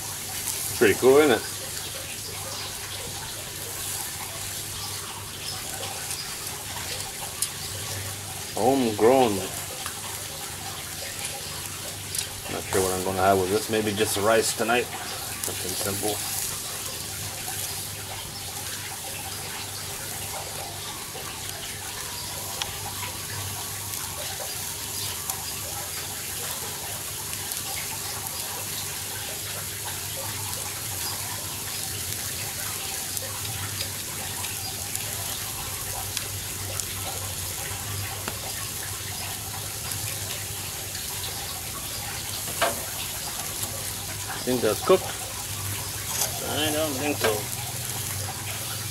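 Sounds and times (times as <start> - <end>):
charcoal crackling: 0.0 - 48.9
meat sizzling on a grill: 0.0 - 48.9.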